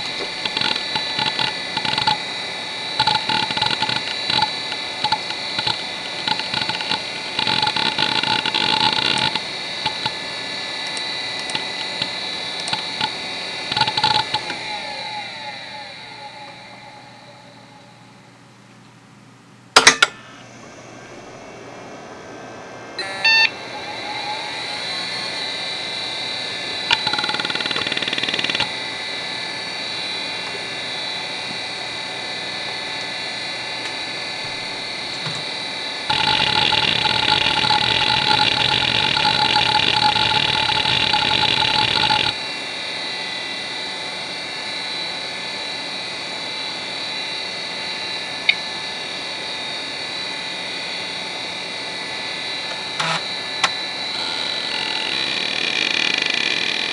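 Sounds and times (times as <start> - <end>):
hard drive clicks: 0.0 - 15.5, 26.8 - 28.7, 36.1 - 42.4
hard drive heads seeking chatter: 0.0 - 18.4, 23.0 - 28.8, 34.6 - 42.4, 52.7 - 56.9
hard drive spindle whine: 0.0 - 56.9.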